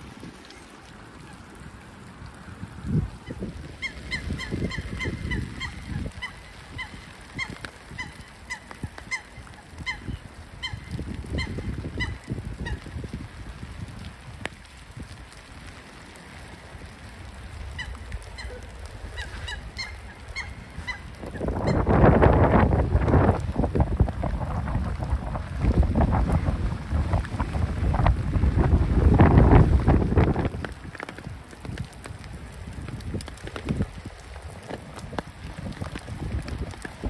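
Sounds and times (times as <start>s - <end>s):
waterbirds calling: 0.0s - 13.4s, 14.6s - 24.2s
wind rumbling on microphone: 0.0s - 37.0s.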